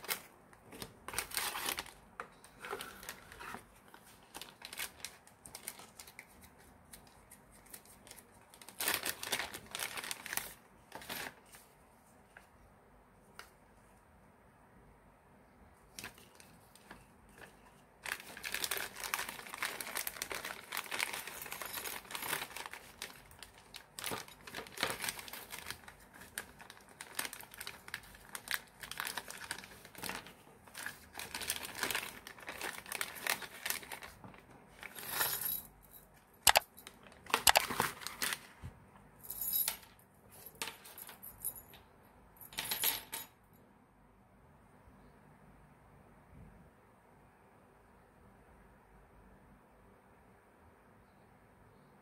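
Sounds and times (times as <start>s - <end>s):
plastic bags crinkling: 0.0s - 6.5s, 7.6s - 11.4s, 16.0s - 35.6s, 36.4s - 38.5s.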